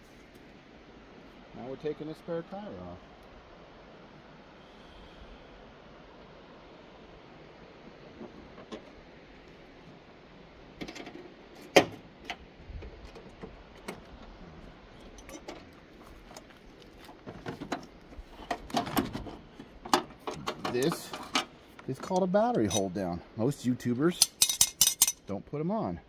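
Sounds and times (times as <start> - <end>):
metal hand tools clinking: 20.7 - 23.0, 24.1 - 25.3.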